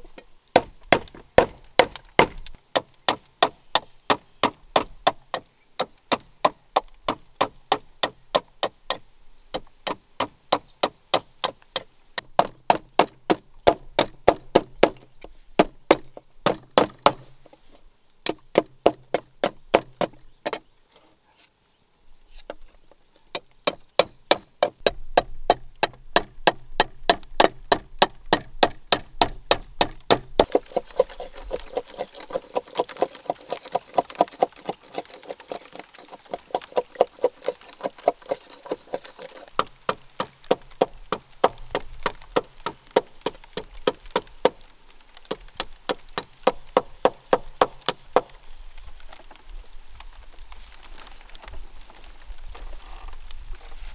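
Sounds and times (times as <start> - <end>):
steady background hiss: 0.0 - 36.4.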